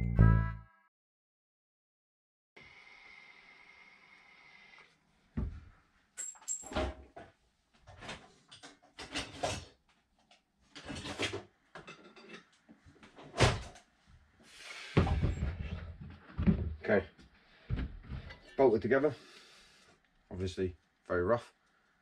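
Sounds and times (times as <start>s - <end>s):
tools knocking and clattering: 10.8s - 12.6s.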